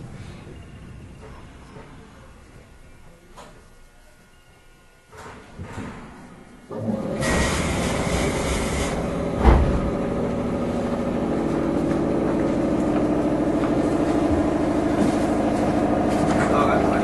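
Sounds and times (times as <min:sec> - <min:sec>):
train motors and wheels humming: 0:00.0 - 0:17.0
hiss: 0:07.2 - 0:09.0.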